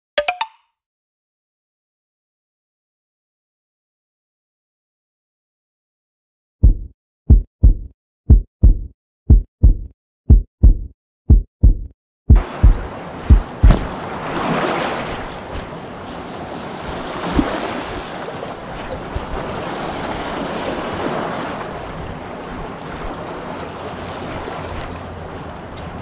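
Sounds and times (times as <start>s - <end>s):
low thump: 6.6s - 13.9s
waves washing against rocks: 12.4s - 26.0s
wind buffeting microphone: 12.4s - 26.0s.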